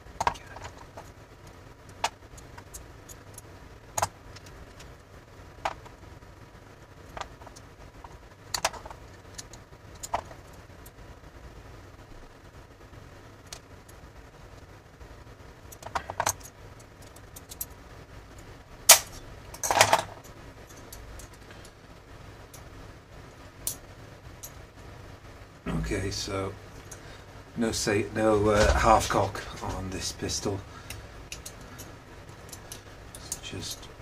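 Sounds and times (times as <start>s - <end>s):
small metal clicks and taps: 30.9s - 31.9s.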